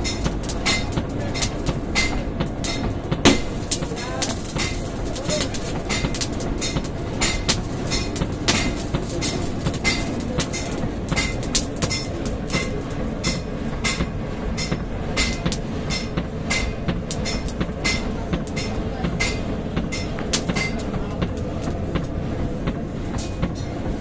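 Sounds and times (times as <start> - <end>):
hammer striking steel on anvil: 0.0 - 22.1
steady low rumble: 0.0 - 24.0.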